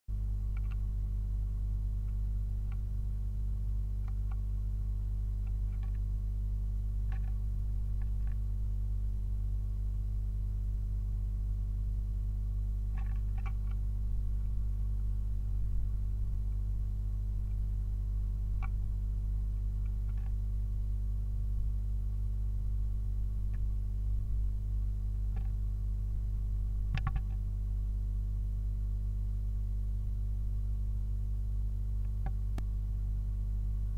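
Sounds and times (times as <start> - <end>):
low electrical hum: 0.1 - 33.9
bird ticks and scratches on wood: 5.4 - 6.1, 7.1 - 7.4, 12.9 - 13.8, 19.8 - 20.4.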